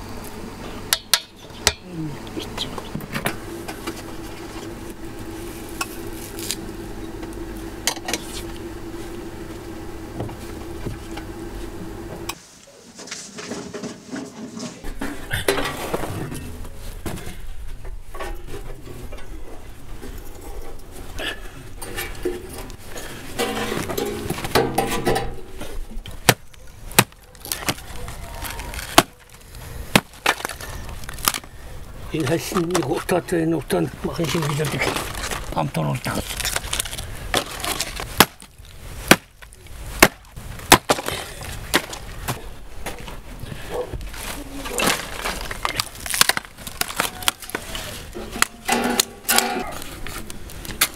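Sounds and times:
low hum: 0.0s - 12.4s, 14.9s - 26.7s
hatchet chopping wood: 26.2s - 27.8s, 28.9s - 29.1s, 29.9s - 30.5s, 38.2s - 38.5s, 39.1s - 39.4s, 40.0s - 41.1s.

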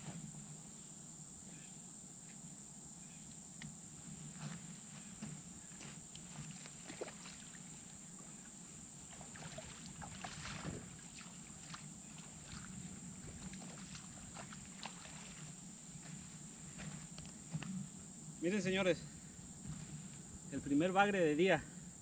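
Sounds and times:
crickets trilling: 0.0s - 22.0s
person wading through water: 5.0s - 17.7s.

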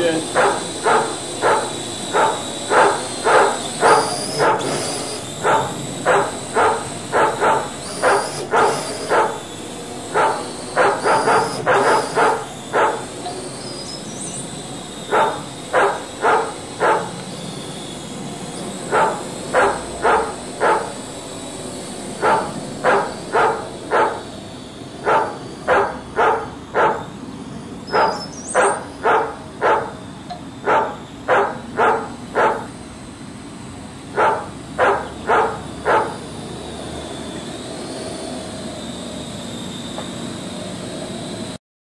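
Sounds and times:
faint high whine: 0.0s - 41.6s
dog barking: 0.3s - 9.4s, 10.1s - 13.1s, 15.0s - 17.2s, 18.8s - 21.0s, 22.2s - 24.3s, 25.0s - 27.1s, 27.9s - 30.0s, 30.6s - 32.8s, 34.1s - 36.2s.

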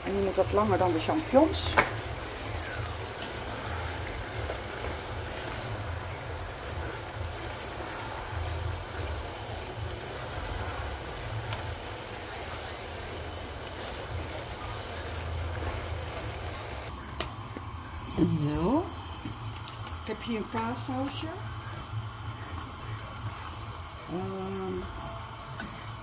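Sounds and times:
food sizzling in a pan: 0.0s - 26.0s
spatula stirring in a pan: 0.4s - 16.9s.

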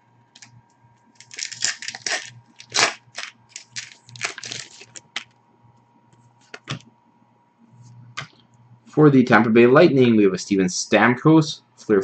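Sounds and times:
plastic wrapper tearing and crinkling: 1.2s - 5.3s.

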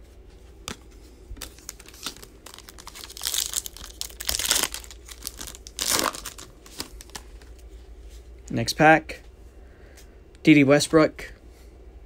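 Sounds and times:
foil wrapper tearing and crinkling: 1.4s - 7.5s.

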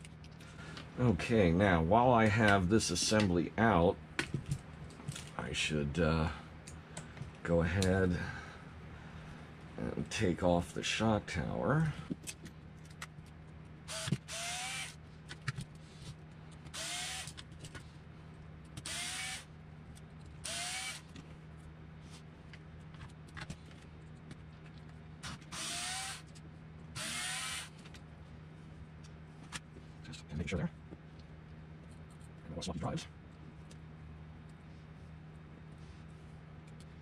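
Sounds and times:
power screwdriver whining: 13.9s - 15.0s, 16.8s - 17.4s, 18.8s - 19.4s, 20.4s - 21.1s, 25.2s - 26.3s, 27.0s - 27.7s.

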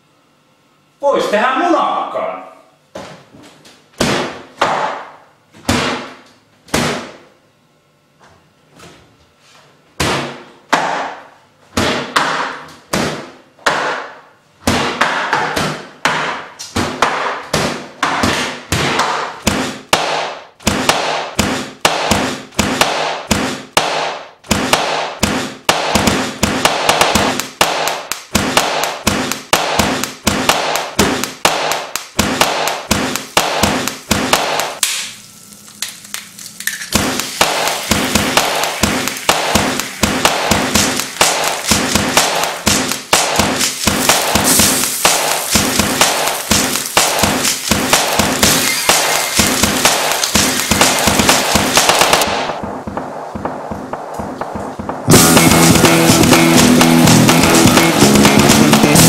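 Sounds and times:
slapped bass guitar notes: 54.8s - 59.0s.

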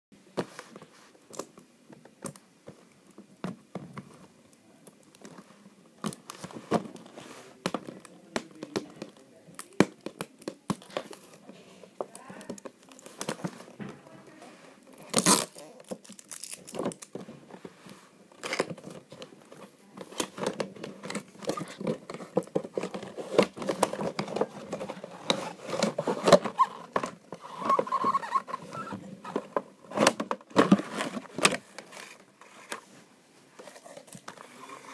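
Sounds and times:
packaging rustling and crinkling: 3.9s - 34.9s
cardboard ripping: 15.0s - 17.1s.

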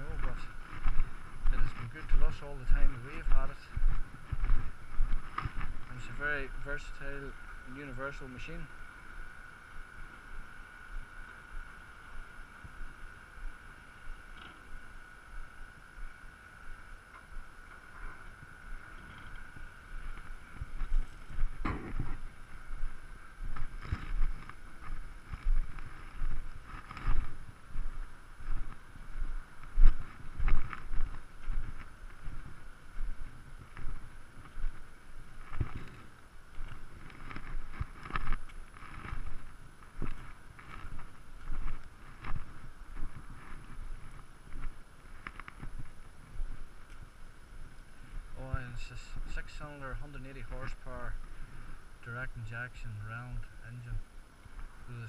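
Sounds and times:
wind buffeting microphone: 0.0s - 8.2s, 17.8s - 48.7s
footsteps crunching on gravel: 0.0s - 13.6s, 14.6s - 51.8s.

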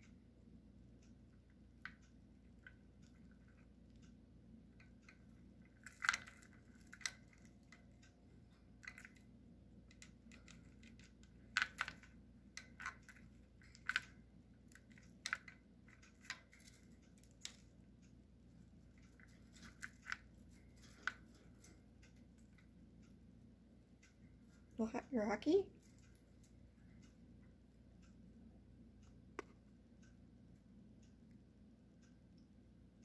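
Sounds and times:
bird pecking with sharp clicks: 0.9s - 23.1s.

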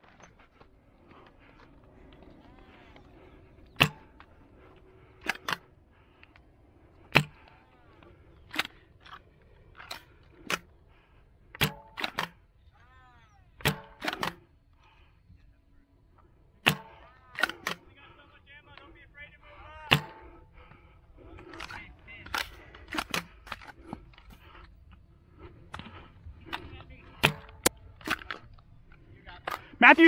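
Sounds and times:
faint distant shouting: 1.2s - 5.0s.

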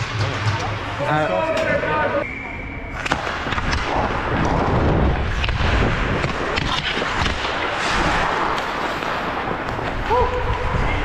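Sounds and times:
skates scraping across ice: 3.0s - 11.0s.

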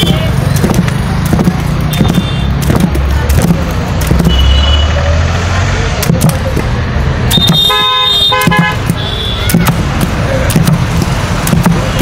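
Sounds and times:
wooden paddle beating in steel pot: 0.0s - 4.5s, 6.0s - 12.0s
vehicle horn honking: 4.3s - 5.0s, 7.3s - 9.5s.

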